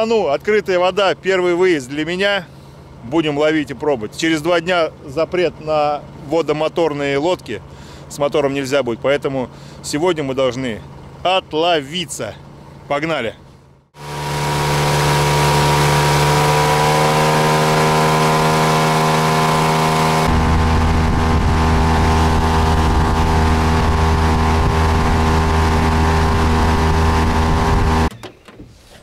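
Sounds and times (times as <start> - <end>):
outboard motor running: 9.5 - 11.5, 13.5 - 28.1.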